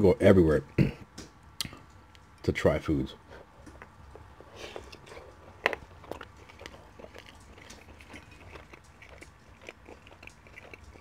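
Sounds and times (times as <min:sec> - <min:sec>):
wet chewing mouth sounds: 0:03.5 - 0:11.0.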